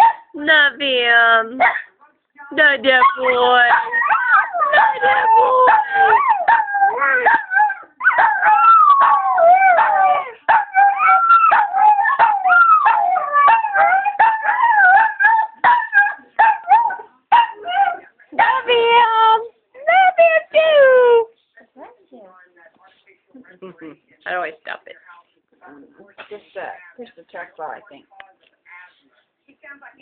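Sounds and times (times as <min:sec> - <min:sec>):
dog howling: 0:03.1 - 0:18.1.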